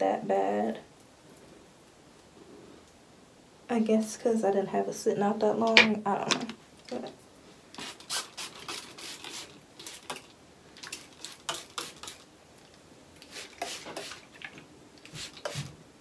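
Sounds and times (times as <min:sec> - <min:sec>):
spray bottle spritzing: 0:07.8 - 0:12.3, 0:13.2 - 0:14.3.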